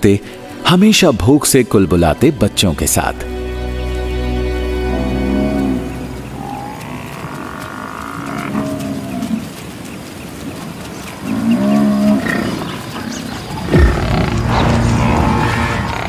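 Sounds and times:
buffalo lowing: 0:04.8 - 0:16.0
lion roar: 0:04.9 - 0:09.5, 0:11.3 - 0:16.0.

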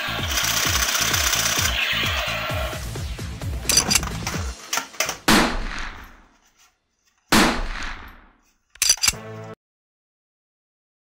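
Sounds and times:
rapid burst of gunshots: 0:00.1 - 0:01.8
gunshots with echo: 0:05.3 - 0:06.2, 0:07.3 - 0:08.3
sharp cracks: 0:07.3 - 0:09.2.

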